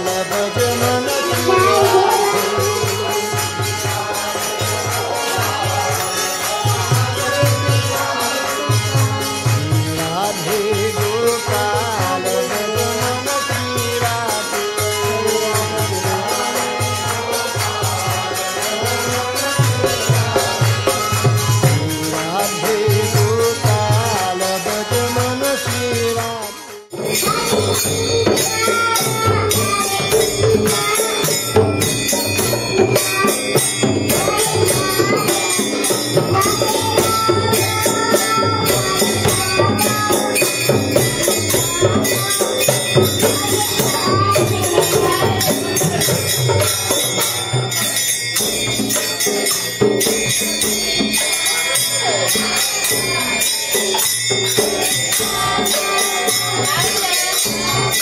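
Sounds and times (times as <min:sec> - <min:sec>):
voices chanting: 0:00.0 - 0:08.4
hand cymbals jingling: 0:00.3 - 0:05.2, 0:27.0 - 0:58.0
hand drum beat: 0:00.5 - 0:04.3, 0:25.1 - 0:51.4.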